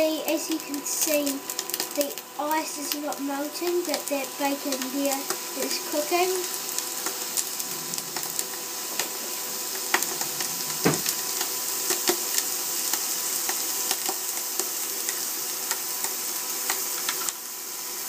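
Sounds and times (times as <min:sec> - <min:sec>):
bacon sizzling in a frying pan: 0:00.0 - 0:18.0.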